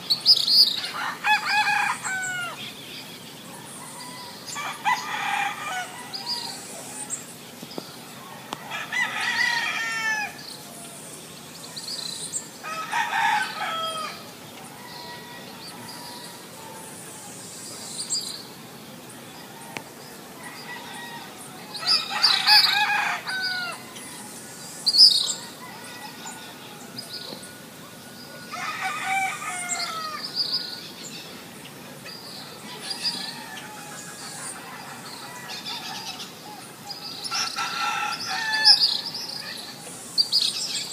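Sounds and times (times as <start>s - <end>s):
small birds chirping: 0.0s - 40.9s
rooster crowing: 0.8s - 2.6s, 3.6s - 7.2s, 8.3s - 10.4s, 12.6s - 16.9s, 20.4s - 24.3s, 25.3s - 30.3s, 32.6s - 36.2s, 37.3s - 39.1s.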